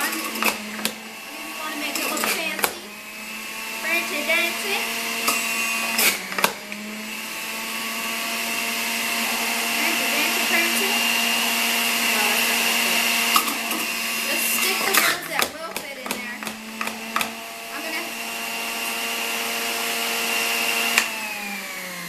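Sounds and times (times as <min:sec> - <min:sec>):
juicer motor humming and whining: 0:00.0 - 0:22.0.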